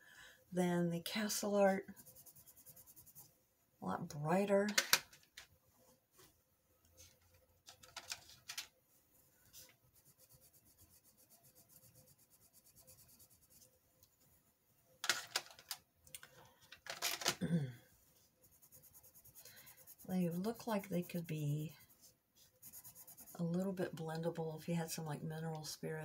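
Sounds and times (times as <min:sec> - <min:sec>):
colored pencils scribbling on paper: 0:01.7 - 0:03.3, 0:09.6 - 0:13.7, 0:18.4 - 0:23.8.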